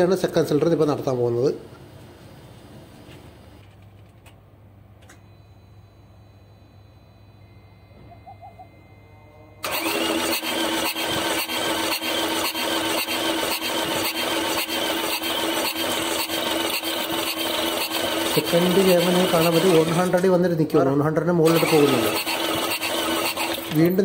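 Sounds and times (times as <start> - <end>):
diesel engine cranking: 9.6 - 20.4, 21.4 - 24.0
starter motor whine: 9.6 - 20.4, 21.4 - 24.0.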